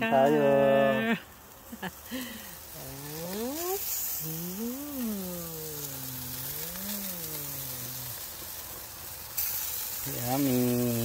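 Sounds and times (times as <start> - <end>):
faint sizzling from grill: 0.0 - 11.0
person humming: 2.7 - 8.3, 10.1 - 11.0.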